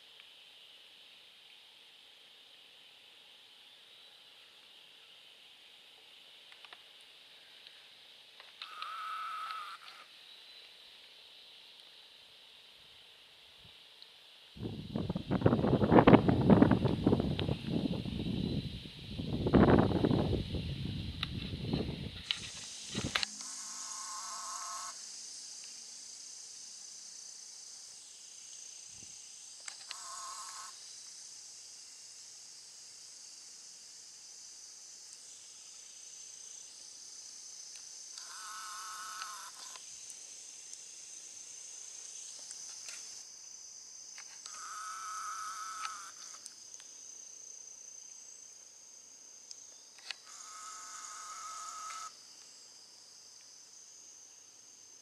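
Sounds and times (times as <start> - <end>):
high-pitched insect buzz: 8.4 - 11.0, 14.5 - 55.0
trilling animal call: 8.7 - 9.9, 23.4 - 25.0.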